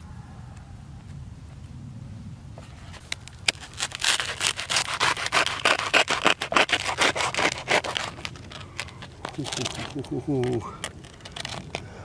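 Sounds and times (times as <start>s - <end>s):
knife sawing bread crust: 3.5s - 10.0s.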